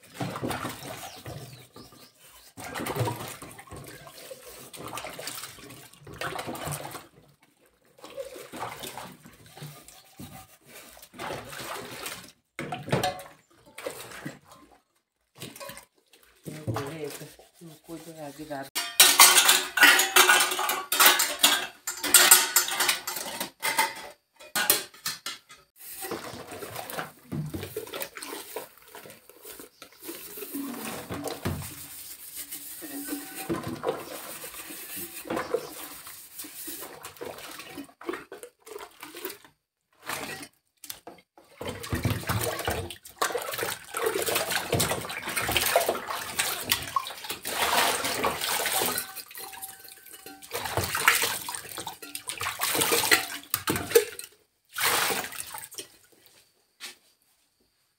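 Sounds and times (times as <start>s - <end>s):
scrubbing and sloshing water: 0.0s - 24.0s, 24.6s - 56.4s
water splashing: 2.6s - 14.6s, 41.5s - 55.9s
utensils clinking: 18.8s - 26.4s, 32.4s - 35.8s, 46.4s - 54.3s.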